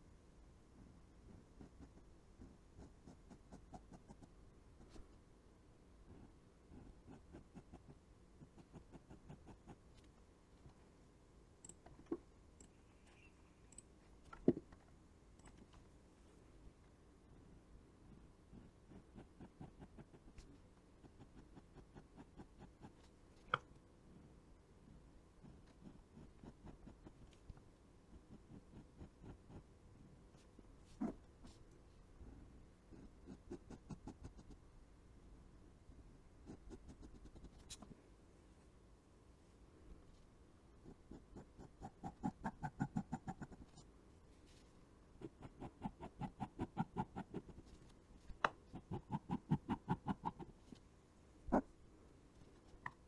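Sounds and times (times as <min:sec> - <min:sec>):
pen scratching on paper: 0:01.2 - 0:05.0, 0:06.1 - 0:09.8, 0:18.5 - 0:23.1, 0:25.4 - 0:27.3, 0:28.1 - 0:29.7, 0:32.9 - 0:34.6, 0:36.4 - 0:37.8, 0:40.8 - 0:43.8, 0:45.2 - 0:47.8.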